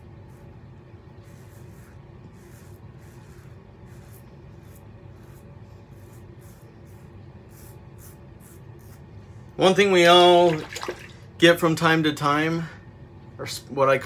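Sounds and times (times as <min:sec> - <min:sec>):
razor scraping stubble: 0:01.2 - 0:09.1.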